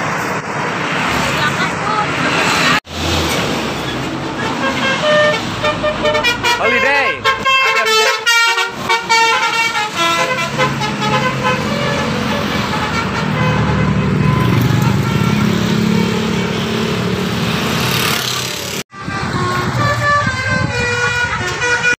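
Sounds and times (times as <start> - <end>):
heavy traffic passing: 0.0 - 22.0
multi-tone bus air horn tune: 4.3 - 17.1, 18.3 - 22.0.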